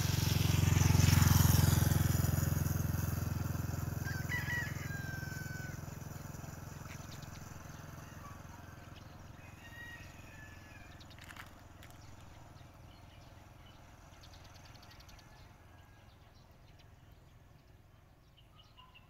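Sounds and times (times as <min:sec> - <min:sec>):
vehicle engine passing: 0:00.0 - 0:17.1
faint rooster crowing: 0:04.0 - 0:06.2, 0:07.9 - 0:11.1, 0:15.1 - 0:16.4.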